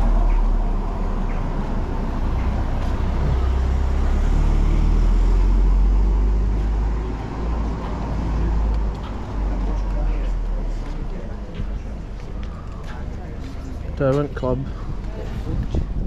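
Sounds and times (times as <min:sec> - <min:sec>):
motor vehicle rumbling: 0:00.0 - 0:16.0
town street noise: 0:00.0 - 0:16.0.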